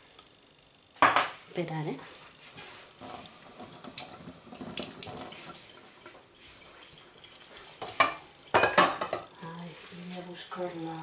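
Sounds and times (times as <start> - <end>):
tap running into sink: 3.0 - 6.2
kitchenware clattering: 7.8 - 9.3.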